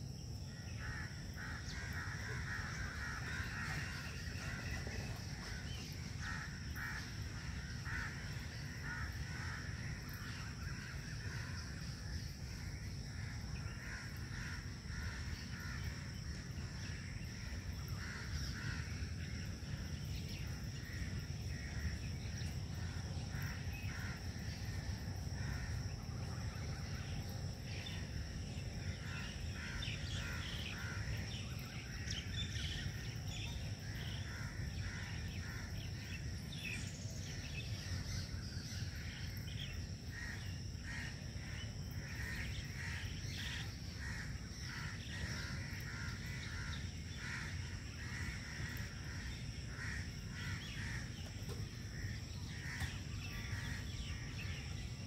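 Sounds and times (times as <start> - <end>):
birds calling: 28.6 - 55.0.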